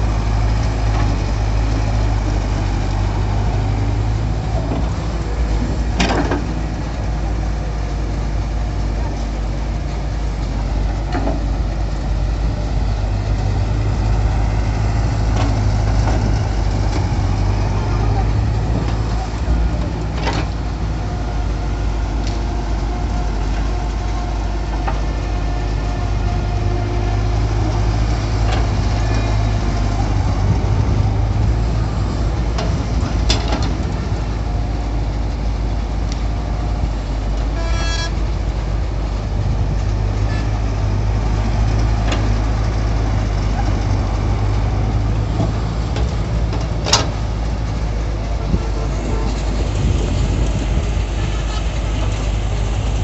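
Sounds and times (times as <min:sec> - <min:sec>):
excavator diesel engine running: 0:00.0 - 0:53.0
horn toot: 0:37.6 - 0:38.2.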